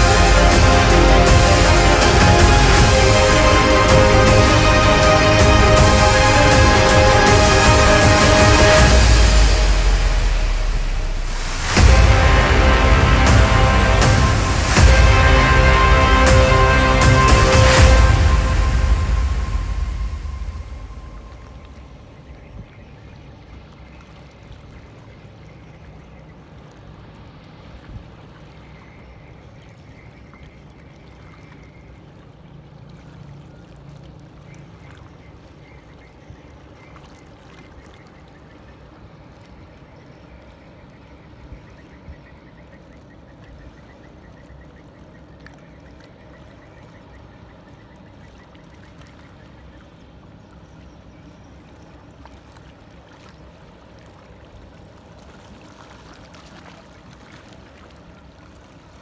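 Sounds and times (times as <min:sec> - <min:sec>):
low hum: 0:00.0 - 0:22.8
boat engines droning: 0:00.0 - 0:59.0
water noise: 0:00.0 - 0:59.0.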